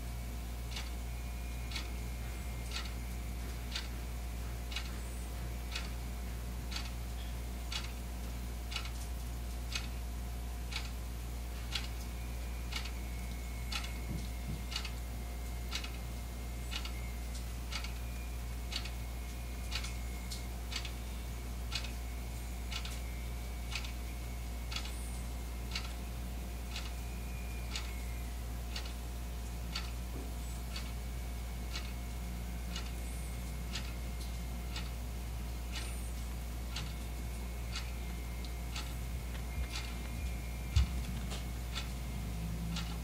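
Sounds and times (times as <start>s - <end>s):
clock ticking: 0.7s - 0.9s, 1.7s - 6.0s, 6.7s - 7.0s, 7.7s - 8.0s, 8.7s - 9.0s, 9.7s - 10.0s, 10.7s - 11.0s, 11.7s - 13.0s, 13.7s - 15.0s, 15.7s - 16.0s, 16.7s - 18.1s, 18.7s - 21.0s, 21.7s - 21.9s, 22.7s - 23.1s, 23.7s - 24.0s, 24.7s - 24.9s, 25.7s - 26.0s, 26.7s - 27.0s, 27.7s - 27.9s, 28.7s - 29.0s, 29.7s - 30.0s, 30.7s - 31.0s, 31.7s - 32.0s, 32.7s - 35.0s, 36.7s - 43.0s
low hum: 29.4s - 43.0s.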